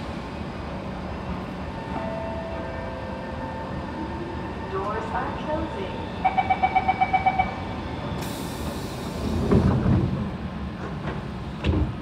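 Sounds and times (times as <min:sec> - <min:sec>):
sliding doors shutting with thud: 0:09.2 - 0:12.0.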